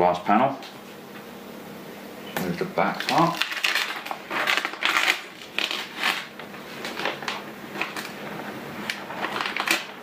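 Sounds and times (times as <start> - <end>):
paper rustling: 3.1 - 10.0.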